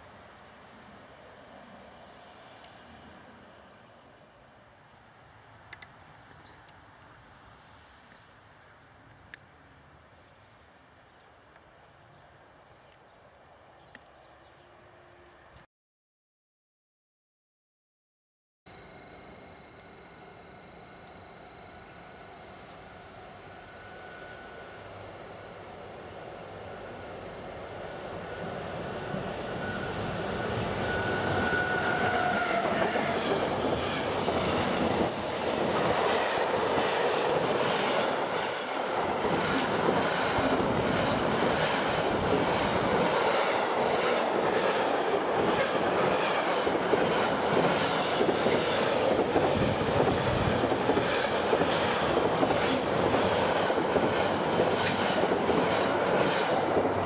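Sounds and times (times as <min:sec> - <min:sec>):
freight train wheels rumbling: 0:21.5 - 0:57.0.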